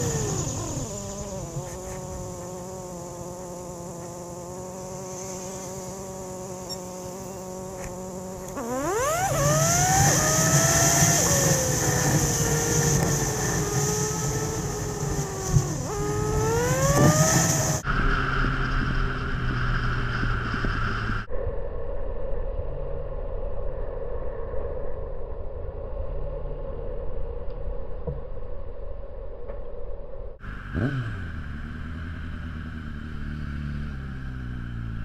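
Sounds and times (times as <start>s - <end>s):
motorcycle engine revving: 0.0s - 21.3s, 30.4s - 35.0s.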